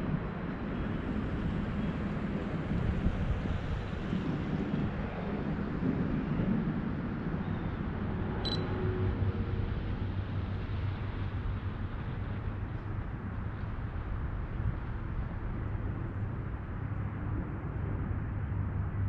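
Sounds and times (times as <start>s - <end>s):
low outdoor rumble: 0.0s - 19.0s
short high electronic beep: 8.4s - 8.7s.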